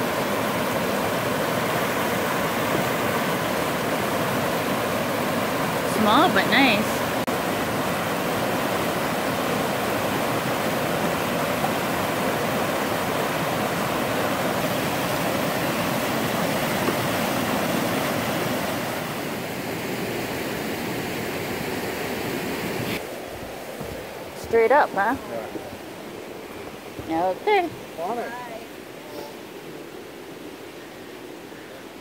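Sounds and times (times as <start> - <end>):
river rapids rushing over rocks: 0.0 - 24.4.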